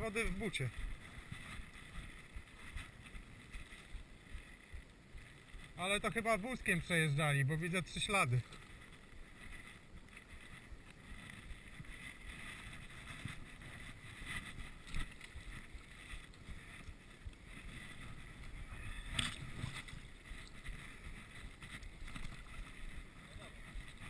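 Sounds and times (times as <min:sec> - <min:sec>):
bikes scraping and knocking: 0:00.0 - 0:24.0
low rustling: 0:00.0 - 0:24.0
footsteps on snow: 0:05.6 - 0:24.0.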